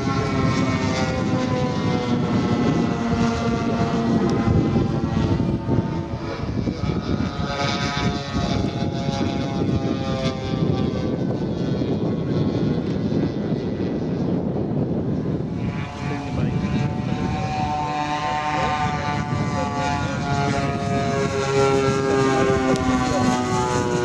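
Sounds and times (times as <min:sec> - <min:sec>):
model airplane propeller engines: 0:00.0 - 0:24.0.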